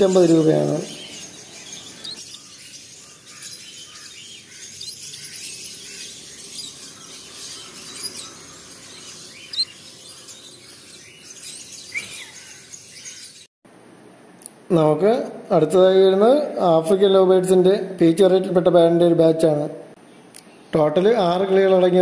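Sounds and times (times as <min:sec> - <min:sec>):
finches chirping: 0:00.0 - 0:13.5.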